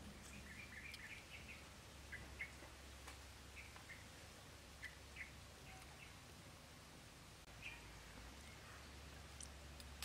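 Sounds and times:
faint bird chirps: 0.2 - 2.7, 3.5 - 4.2, 4.8 - 6.3, 7.5 - 9.4.

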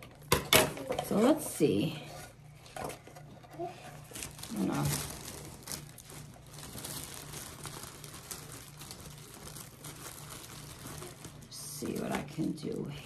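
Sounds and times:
cellophane bag crinkling: 2.9 - 12.9.

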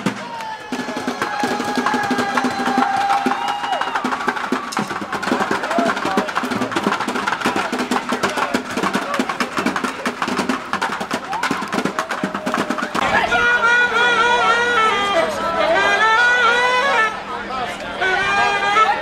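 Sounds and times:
fast street drumming: 0.0 - 13.3
crowd chatter: 0.0 - 19.0.

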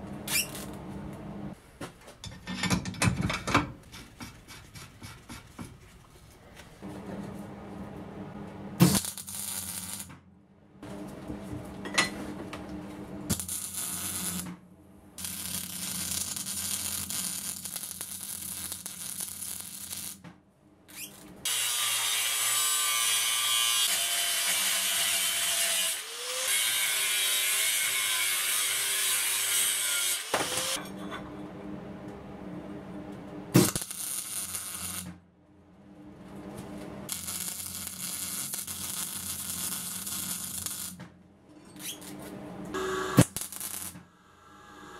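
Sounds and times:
angle grinder on steel: 21.5 - 30.8.

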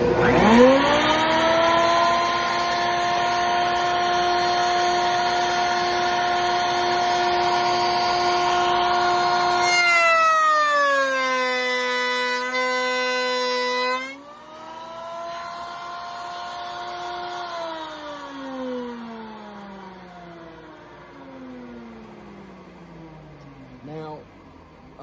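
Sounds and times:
router cutting wood: 0.0 - 22.1
dust collector running: 0.0 - 25.0.

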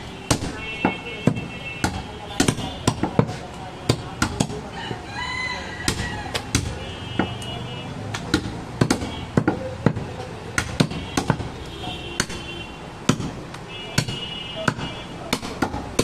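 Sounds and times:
knife chopping meat and bone: 0.3 - 4.7, 5.8 - 7.5, 8.1 - 11.6, 12.2 - 12.4, 13.0 - 16.0.

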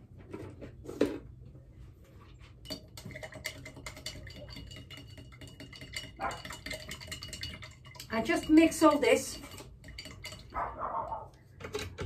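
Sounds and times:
salt ticking on glass bottle: 2.6 - 10.6.

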